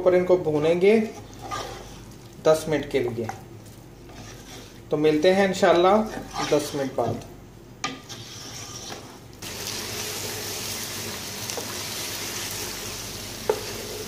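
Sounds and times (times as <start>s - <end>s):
chicken sizzling in a pot: 9.4s - 14.0s.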